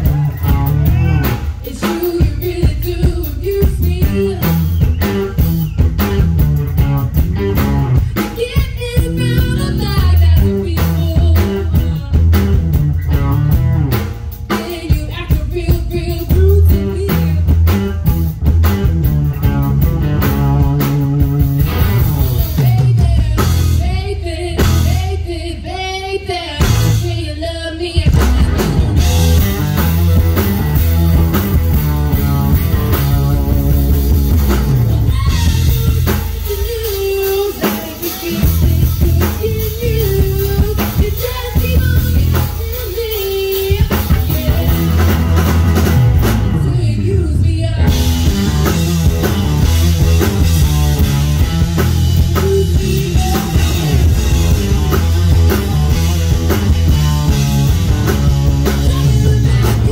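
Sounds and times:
blues-rock band playing: 0.0s - 59.9s
electric guitar: 0.0s - 59.9s
person singing: 20.2s - 28.7s, 34.7s - 45.1s, 51.8s - 56.6s, 58.5s - 59.9s.

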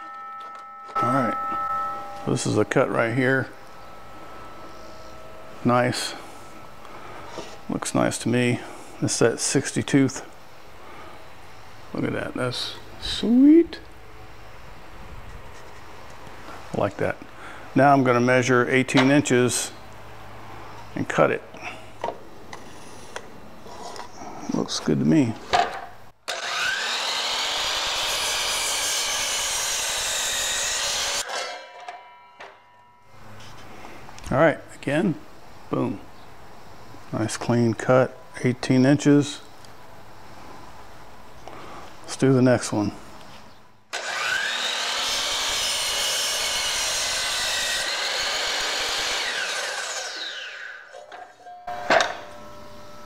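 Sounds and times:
miter saw cutting wood: 26.3s - 32.8s, 43.9s - 51.1s.

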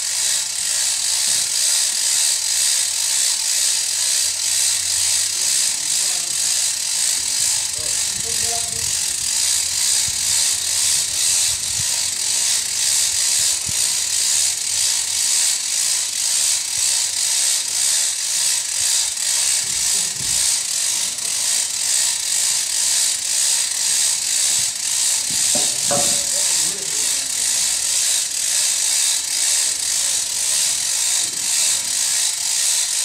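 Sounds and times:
piling machine clattering: 25.1s - 28.2s.

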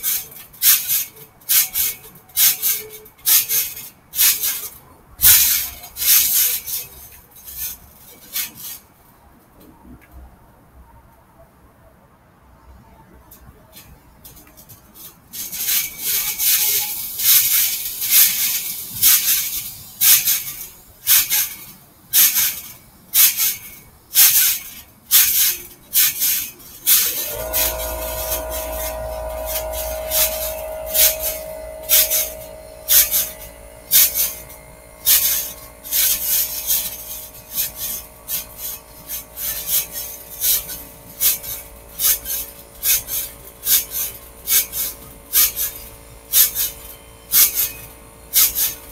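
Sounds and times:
trampoline springs creaking: 0.0s - 10.0s, 13.3s - 48.9s
steady low hum: 26.5s - 48.9s.

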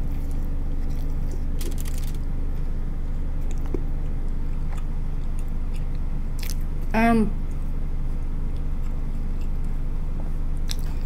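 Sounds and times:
person chewing: 0.0s - 2.2s, 3.4s - 9.8s, 10.5s - 11.0s
wet crunches and mouth clicks: 0.0s - 2.2s, 3.4s - 6.7s, 10.6s - 11.0s
steady low hum: 0.0s - 11.0s.

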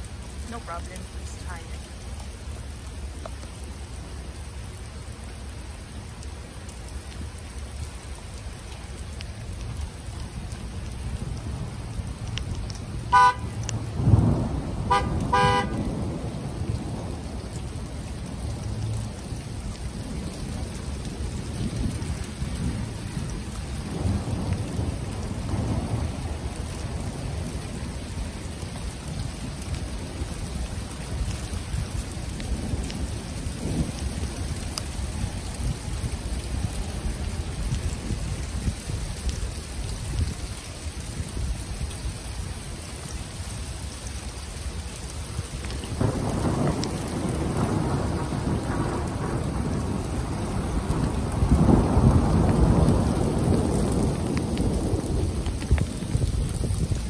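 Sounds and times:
steady rain: 0.0s - 57.0s
thunder rumbling: 7.0s - 41.7s, 44.6s - 57.0s
car horn beeps: 13.1s - 13.6s, 14.9s - 15.8s.

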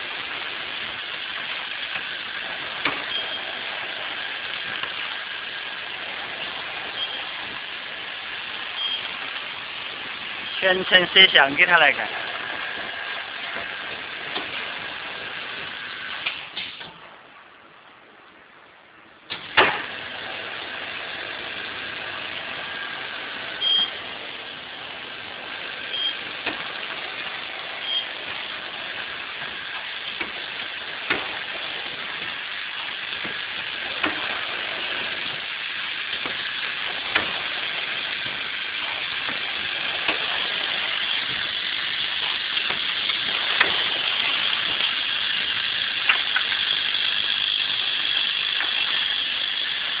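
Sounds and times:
machine mechanical whir: 0.0s - 17.3s, 19.3s - 50.0s
short high beeps: 3.1s - 3.5s, 8.8s - 9.1s, 23.6s - 24.0s, 25.9s - 26.2s, 27.8s - 28.1s
sharp machine clack: 19.4s - 50.0s.

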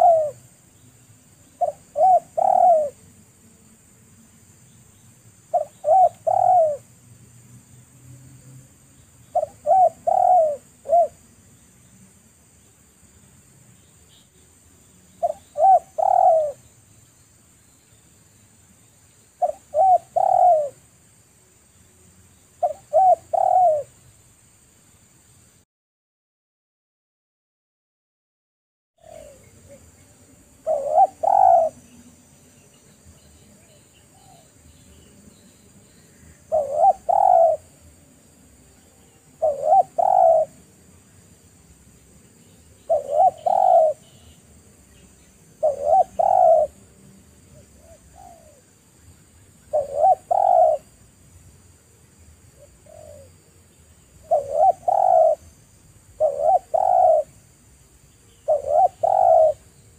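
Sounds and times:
dove cooing: 0.0s - 0.4s, 1.6s - 3.0s, 5.5s - 6.9s, 9.3s - 11.2s, 15.2s - 16.7s, 19.4s - 20.8s, 22.6s - 24.0s, 29.0s - 29.9s, 30.5s - 32.0s, 36.4s - 37.9s, 39.3s - 40.7s, 42.8s - 44.4s, 45.6s - 46.8s, 47.5s - 48.7s, 49.7s - 51.0s, 52.6s - 53.4s, 54.2s - 55.5s, 56.2s - 57.4s, 58.4s - 59.7s.

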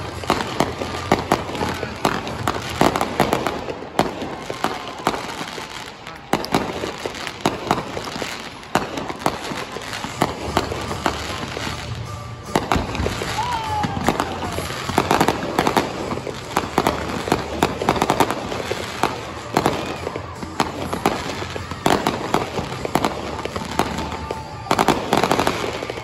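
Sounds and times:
fireworks bursting with bangs: 0.0s - 26.0s
fireworks crackle: 0.0s - 26.0s.

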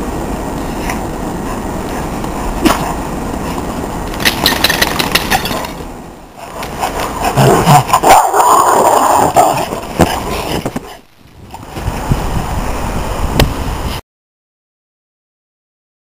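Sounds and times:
dogs barking: 6.4s - 11.0s.

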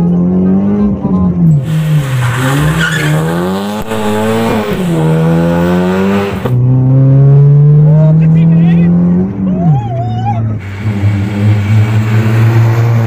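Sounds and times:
car engine revving: 1.6s - 9.5s, 10.5s - 13.0s
tyres squealing: 1.7s - 4.5s.

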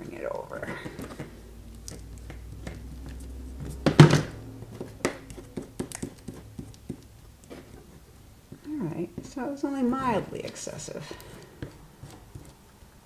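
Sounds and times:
solid thump: 3.8s - 4.4s.

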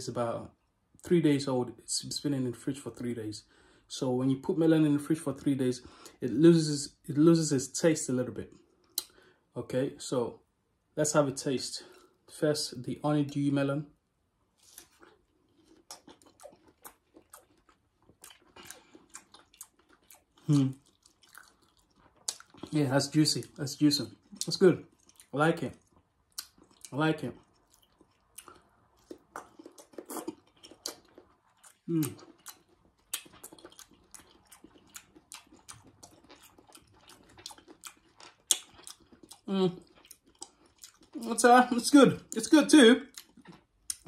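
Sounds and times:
person chewing melon: 14.6s - 22.8s, 23.4s - 41.4s, 43.0s - 44.0s.

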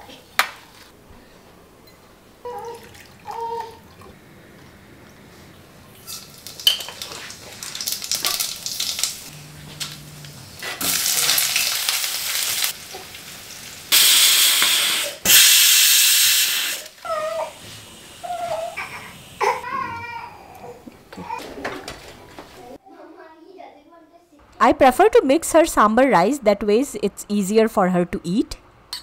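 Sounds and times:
mustard seeds crackling in oil: 6.0s - 13.9s
hissing sizzle in hot pan: 6.1s - 9.3s, 10.6s - 19.6s.

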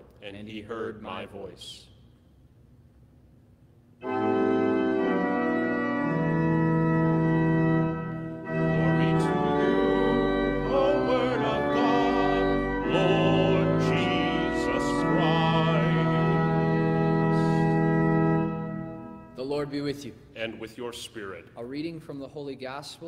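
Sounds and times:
church organ chords: 4.0s - 20.6s
person singing: 8.8s - 17.8s.

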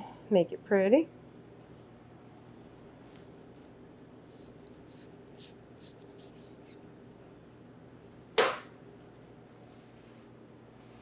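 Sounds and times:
low steady hum: 0.0s - 11.0s
knife trimming meat: 4.4s - 6.9s.

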